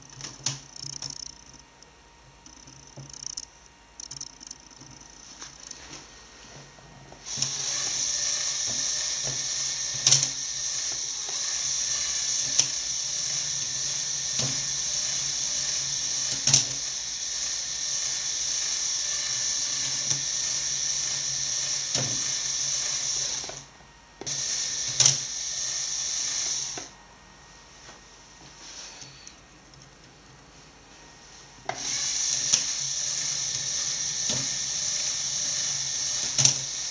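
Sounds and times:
mechanism clacking: 0:00.0 - 0:05.8
motor and gears whirring: 0:00.0 - 0:27.0, 0:31.0 - 0:36.9.

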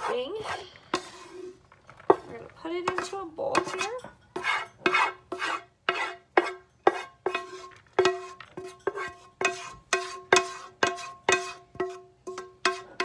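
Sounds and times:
spoon knocking and scraping cookware: 0:00.0 - 0:13.0.

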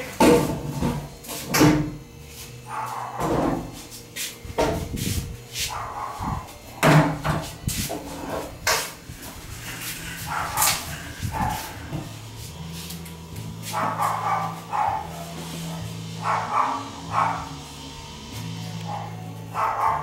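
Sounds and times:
dog barking: 0:02.7 - 0:03.4, 0:05.7 - 0:06.4, 0:10.3 - 0:11.8, 0:13.7 - 0:17.6, 0:18.9 - 0:20.0.

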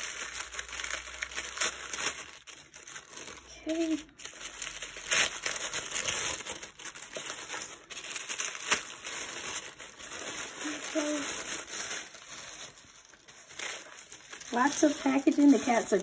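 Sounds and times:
tissue paper crinkling: 0:00.0 - 0:16.0.

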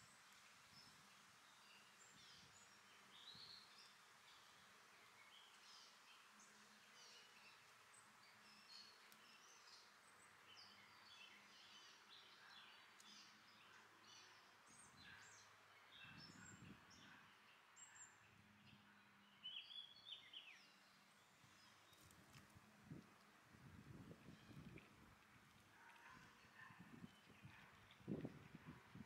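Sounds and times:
small birds chirping and singing: 0:00.0 - 0:29.0.

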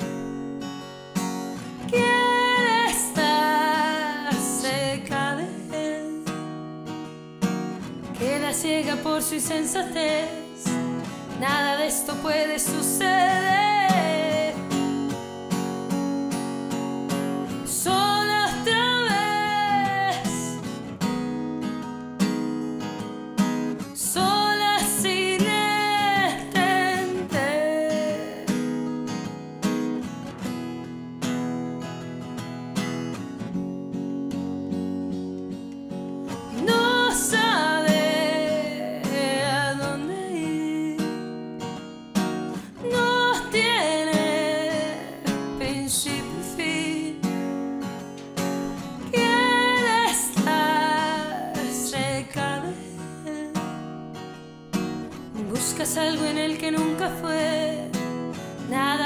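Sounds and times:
woman singing: 0:00.0 - 0:00.4, 0:01.6 - 0:07.0, 0:07.8 - 0:15.7, 0:17.1 - 0:21.2, 0:23.6 - 0:29.3, 0:36.3 - 0:48.0, 0:48.6 - 0:59.0
acoustic guitar strumming: 0:00.0 - 0:59.0.

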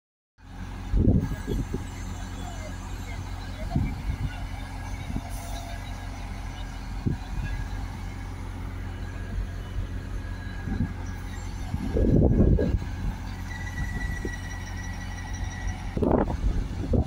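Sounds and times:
diesel engines humming: 0:00.4 - 0:17.0
low rumble: 0:06.1 - 0:17.0.

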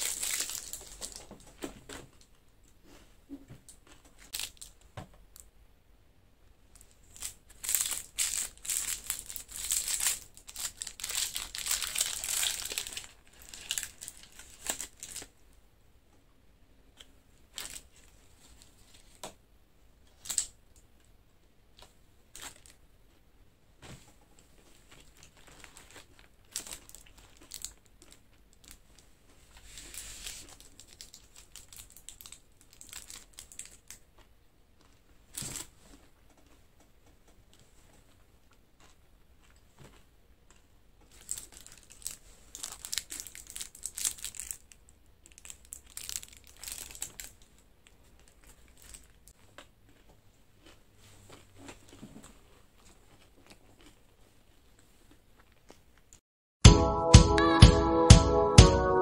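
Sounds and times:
foil wrappers crinkling: 0:00.0 - 0:01.4, 0:07.0 - 0:15.3, 0:24.9 - 0:29.0, 0:29.7 - 0:34.0, 0:41.1 - 0:49.3.

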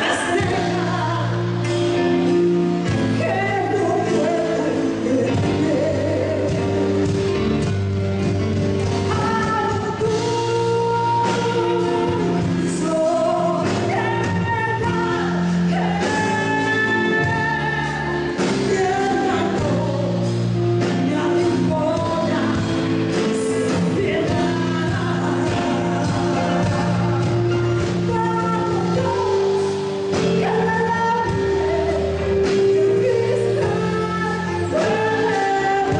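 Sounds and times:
woman singing into a microphone: 0:00.0 - 0:07.4, 0:08.8 - 0:35.9
amplified band: 0:00.0 - 0:35.9
electric bass: 0:00.0 - 0:35.9.

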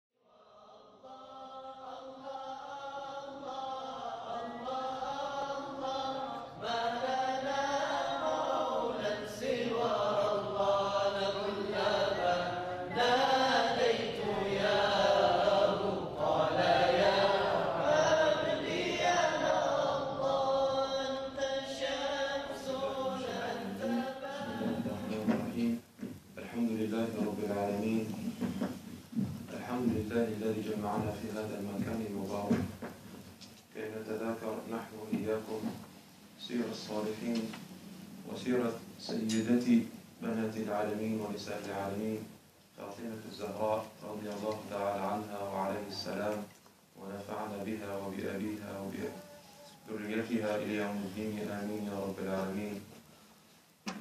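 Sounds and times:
person chanting devotional melody: 0:00.2 - 0:25.8, 0:38.2 - 0:52.8.

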